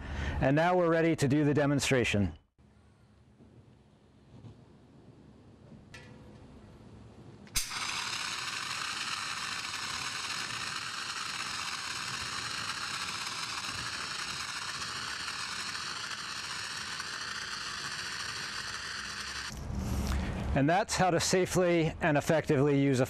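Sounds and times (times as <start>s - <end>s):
water jet hissing: 7.6s - 19.5s.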